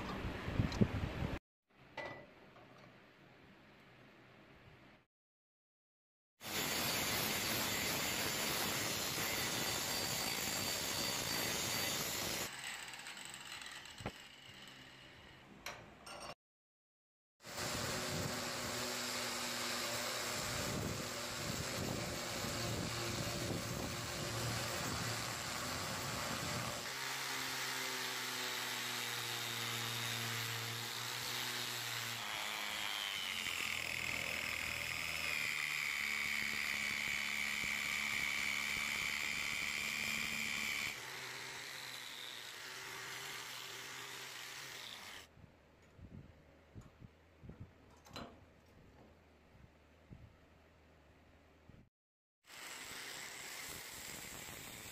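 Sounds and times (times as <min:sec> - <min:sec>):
grinder sanding steel: 0:06.4 - 0:15.2, 0:52.5 - 0:54.9
rotary tool grinding steel: 0:06.4 - 0:15.5, 0:17.5 - 0:45.3, 0:52.5 - 0:54.9.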